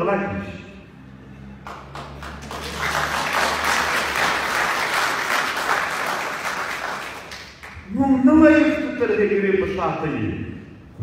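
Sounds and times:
audience applauding: 1.6s - 7.8s.

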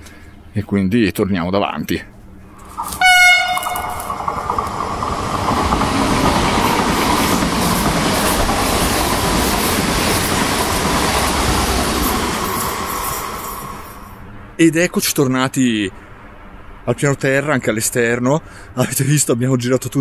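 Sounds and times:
electric train passing: 2.2s - 14.6s
brief high tone: 2.8s - 4.5s.

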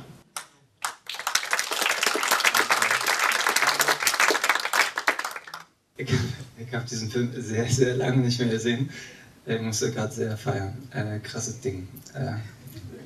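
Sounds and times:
audience applauding: 0.4s - 5.7s.

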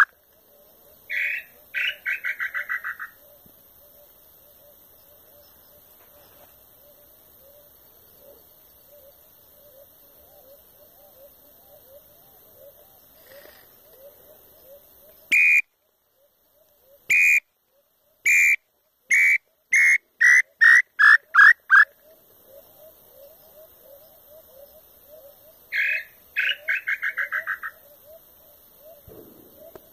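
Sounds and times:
frogs or insects chirping: 0.0s - 29.9s
wooden bird call whistle: 15.3s - 15.7s, 17.1s - 17.5s, 18.2s - 21.9s.

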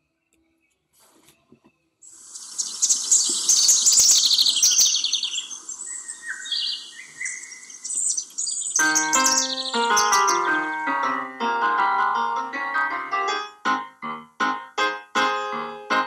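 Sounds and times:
songbirds chirping and trilling: 0.0s - 11.5s
bird whistles sliding down: 2.1s - 9.4s.

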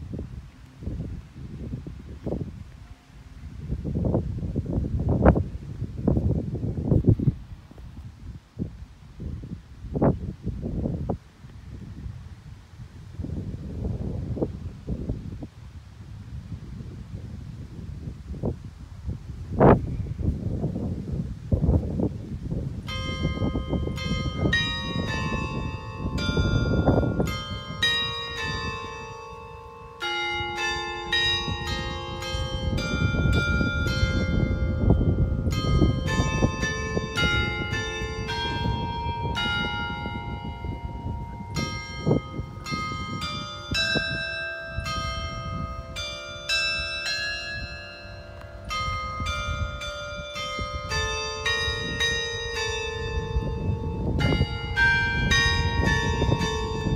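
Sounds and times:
carillon bells playing a tune: 22.8s - 56.9s.

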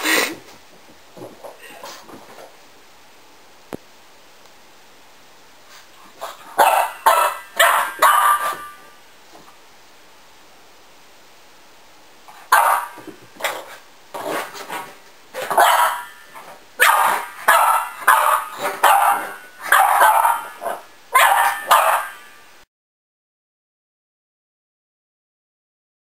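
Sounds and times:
puppy barking: 6.6s - 8.8s, 12.5s - 13.1s, 15.4s - 22.4s.

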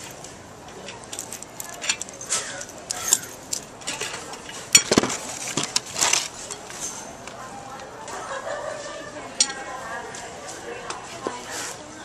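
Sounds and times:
metal lock and key clinking: 0.0s - 5.0s.

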